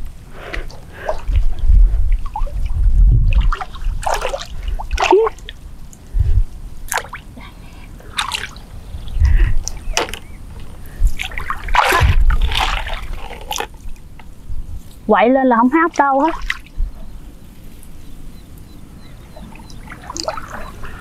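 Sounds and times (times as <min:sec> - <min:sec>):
water sloshing around legs: 0:00.6 - 0:05.6, 0:08.0 - 0:08.8, 0:09.6 - 0:14.0, 0:16.2 - 0:16.7, 0:19.1 - 0:21.0
shallow water splashing: 0:00.6 - 0:06.2, 0:08.0 - 0:14.1, 0:16.0 - 0:16.8, 0:19.1 - 0:21.0.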